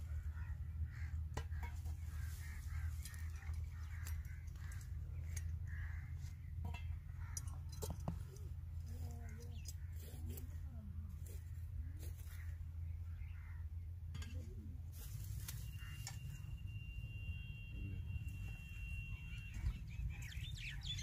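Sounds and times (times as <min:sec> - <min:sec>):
birds chirping: 0:00.0 - 0:10.3, 0:15.3 - 0:21.0
steady low hum: 0:00.0 - 0:21.0.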